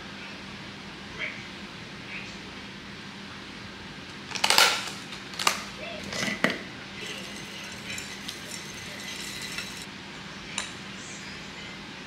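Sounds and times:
glassy clinks: 7.0 - 9.9.

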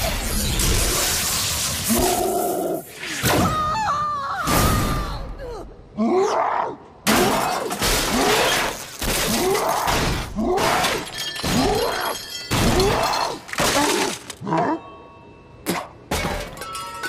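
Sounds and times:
cartoon metal crashes and shattering: 7.1 - 14.4, 15.7 - 17.0.

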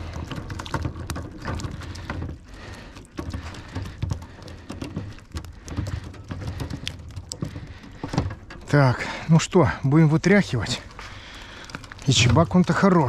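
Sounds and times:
fish flapping against wire mesh: 0.0 - 9.2, 10.5 - 13.0.

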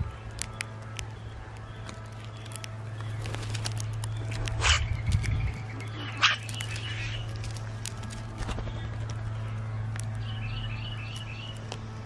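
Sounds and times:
steady low hum: 0.0 - 12.0
harsh grating bird calls: 0.4 - 7.8.

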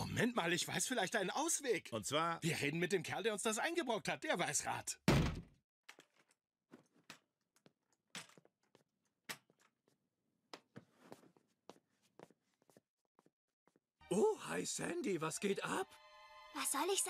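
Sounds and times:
loud thump: 5.1 - 5.5.

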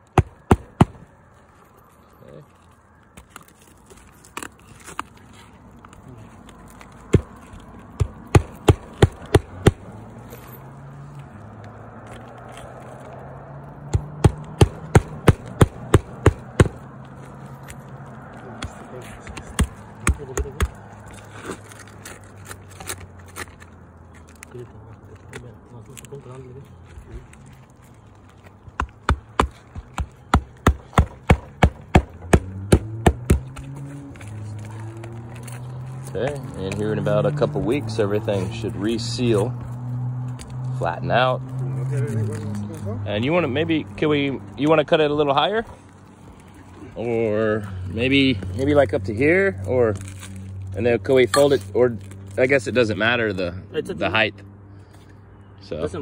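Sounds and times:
hammer striking nails: 8.0 - 9.8, 13.9 - 16.8, 28.8 - 33.6.

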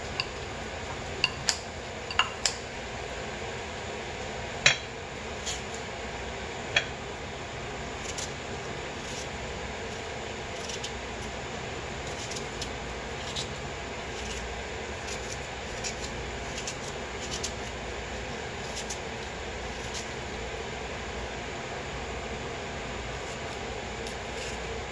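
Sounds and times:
knife cutting apple: 4.7 - 5.8, 7.9 - 11.4, 12.0 - 20.4, 23.1 - 24.8.

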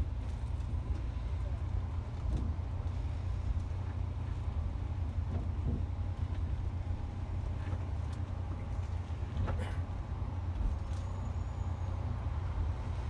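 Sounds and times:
coach diesel engine rumble: 0.0 - 13.0.

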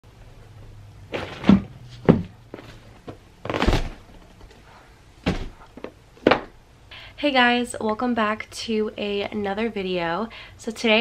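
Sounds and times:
thumps and knocks: 1.1 - 4.2, 5.2 - 6.6.

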